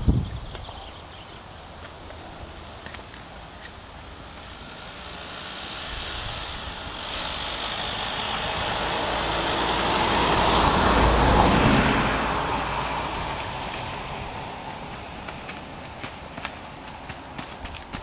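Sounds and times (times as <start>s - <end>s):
road vehicle passing: 1.4s - 18.0s
faint hoof clicks: 14.8s - 18.0s.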